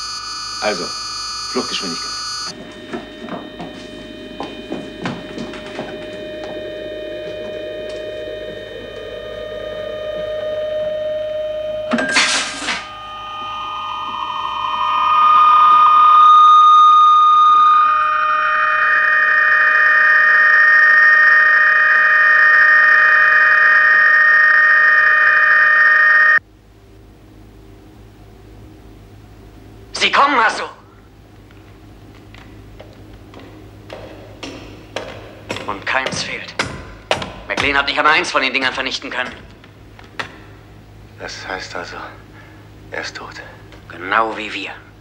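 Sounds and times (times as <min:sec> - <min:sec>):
steady electronic tones: 0:00.0 - 0:26.4
tone gliding into high hum: 0:00.0 - 0:26.4.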